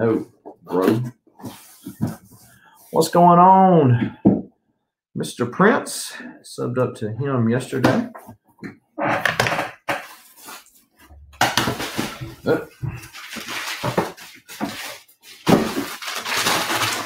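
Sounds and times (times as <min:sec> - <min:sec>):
paper rustling and tearing: 0:11.6 - 0:17.0.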